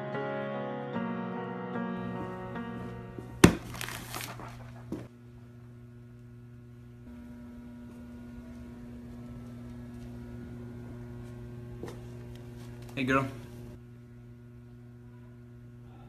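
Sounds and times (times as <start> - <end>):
low room hum: 1.8 - 16.0
paper crinkling and rustling: 3.4 - 5.0.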